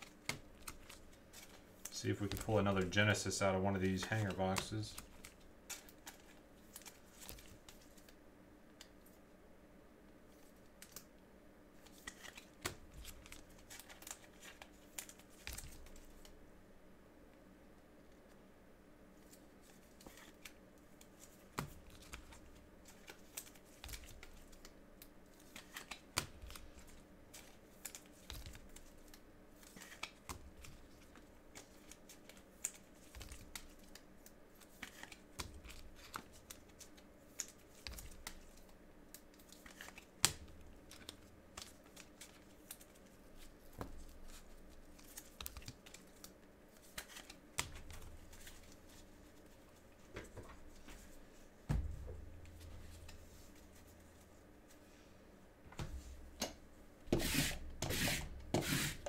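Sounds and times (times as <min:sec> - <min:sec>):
trading cards handled and opened: 0:11.8 - 0:16.3, 0:19.2 - 0:51.1.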